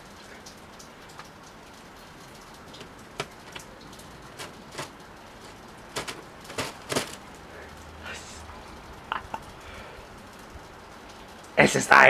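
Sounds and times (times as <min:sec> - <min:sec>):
plastic sheeting crackling: 0:02.2 - 0:07.4.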